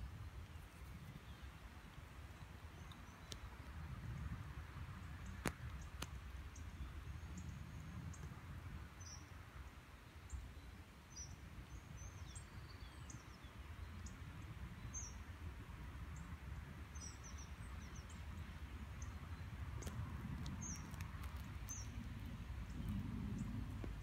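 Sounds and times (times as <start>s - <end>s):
low outdoor rumble: 13.7s - 24.0s.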